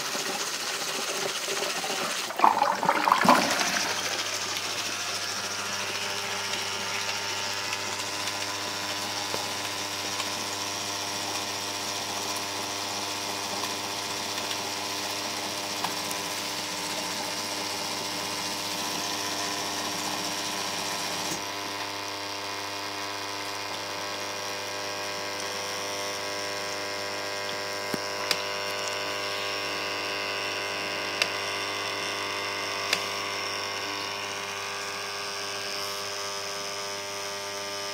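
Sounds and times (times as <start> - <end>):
dishwasher humming: 1.6 - 5.0.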